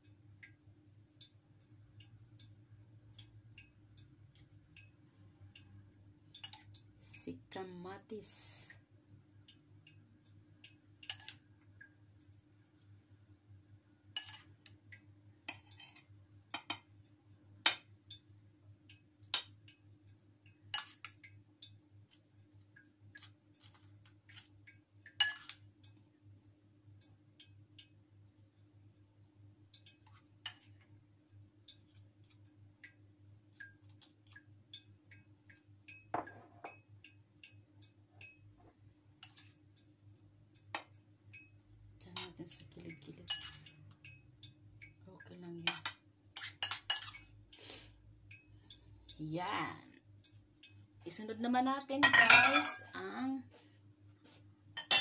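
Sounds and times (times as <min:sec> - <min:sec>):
spoon clinking against bowl: 0:43.3 - 0:43.6, 0:52.0 - 0:52.9.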